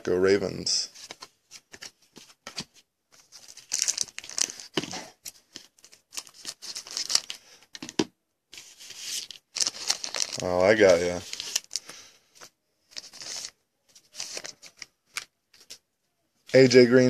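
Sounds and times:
foil wrapper crinkling and tearing: 3.2 - 7.6, 8.6 - 12.0, 12.9 - 15.8.

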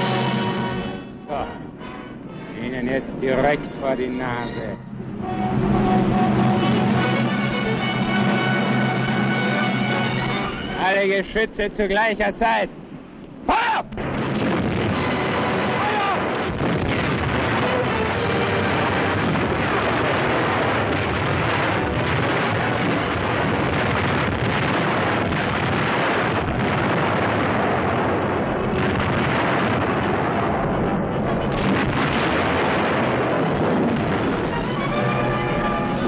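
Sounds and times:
shells bursting: 12.8 - 35.4
cannons firing: 13.9 - 36.0.

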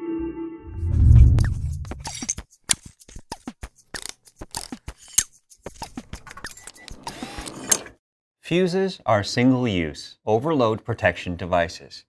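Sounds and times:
brief swish: 0.8 - 2.4.

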